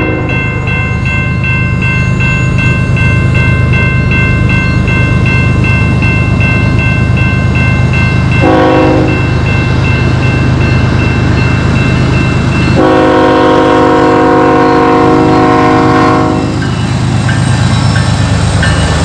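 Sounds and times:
locomotive horn blasts: 0.0s - 0.5s, 8.4s - 9.2s, 12.8s - 16.6s
crossing bell ringing: 0.0s - 19.0s.

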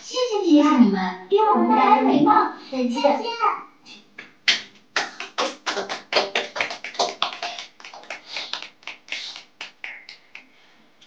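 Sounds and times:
people clapping: 4.2s - 10.6s.

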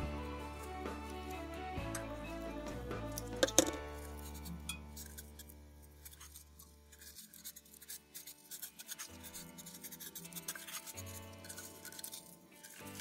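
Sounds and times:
soft background music: 0.0s - 13.0s
twine rubbing and scratching: 6.9s - 13.0s.

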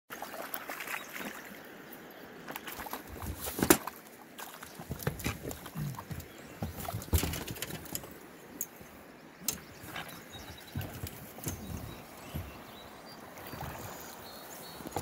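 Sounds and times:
river water flowing: 0.1s - 15.0s
handling clicks and knocks: 4.8s - 8.8s, 9.4s - 12.8s.

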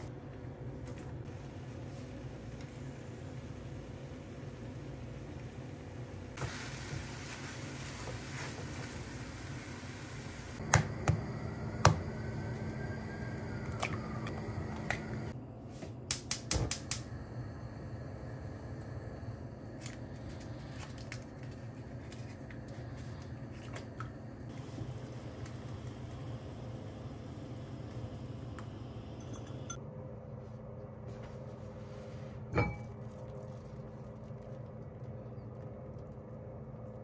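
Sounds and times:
hiss: 6.4s - 10.6s.

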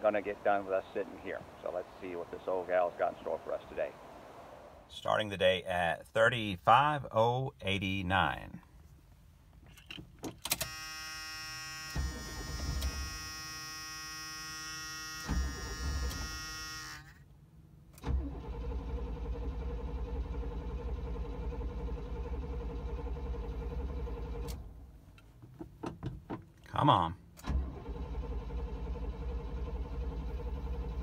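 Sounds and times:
steady buzzing tone: 10.6s - 17.2s
car engine starter cranking: 11.8s - 13.4s, 15.2s - 17.2s, 17.9s - 24.8s, 27.3s - 31.0s.

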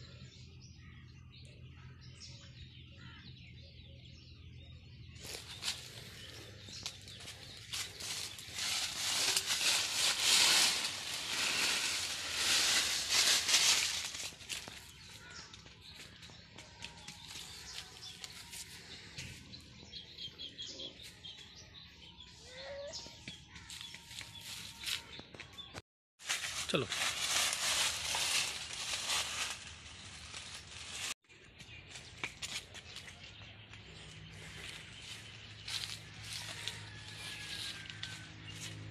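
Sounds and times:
dry leaves crackling and rustling: 5.2s - 15.6s, 17.0s - 18.6s, 26.2s - 31.2s, 34.3s - 38.9s.

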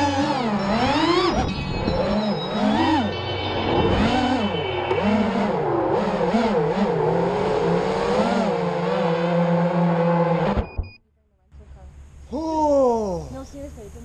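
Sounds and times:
drone motors whining: 0.0s - 10.8s.

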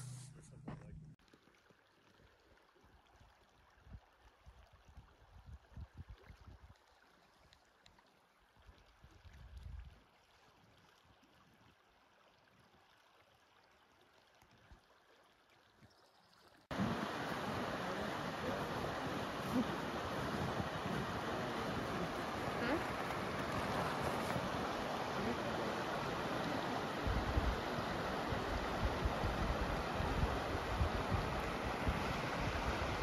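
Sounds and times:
creek water rushing: 16.7s - 33.0s.

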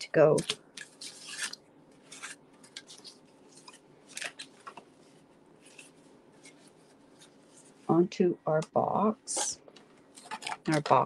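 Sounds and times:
faint paper rustles and scrapes: 0.3s - 8.0s, 10.1s - 11.0s.

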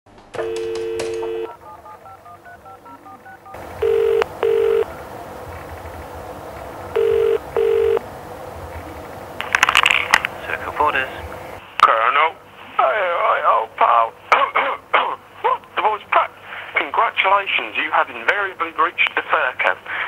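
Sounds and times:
dial tone: 0.4s - 4.9s, 6.9s - 8.0s
double-ring ringback tone: 0.4s - 4.9s, 7.0s - 8.0s
touch-tone dialling beeps: 0.4s - 4.9s, 7.0s - 8.0s
line clicks and noise: 8.7s - 11.0s.

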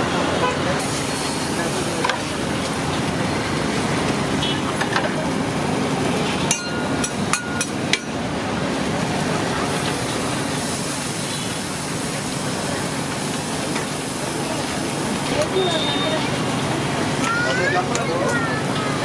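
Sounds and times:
steady hiss of busy stall: 0.0s - 19.0s
metal utensils clinking on griddle: 6.5s - 8.2s.

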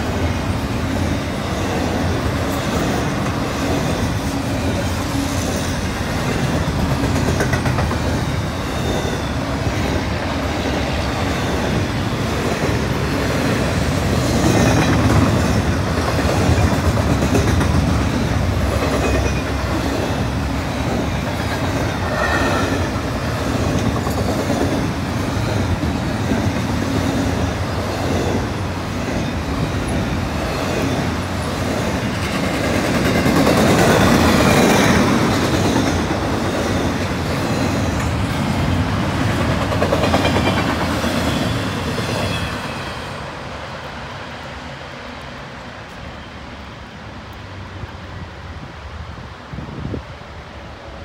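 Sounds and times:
freight train wheels on rails: 0.0s - 51.0s.

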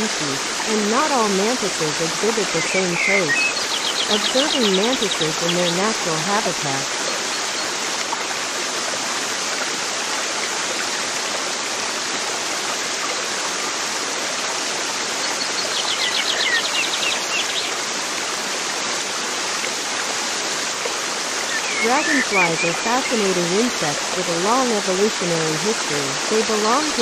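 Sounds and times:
running water rushing: 0.0s - 27.0s
bird trilling: 21.4s - 23.2s.

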